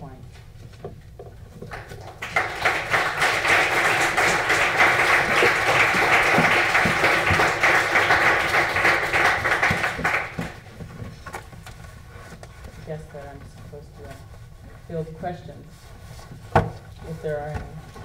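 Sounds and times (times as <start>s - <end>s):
audience applauding: 1.7s - 10.6s.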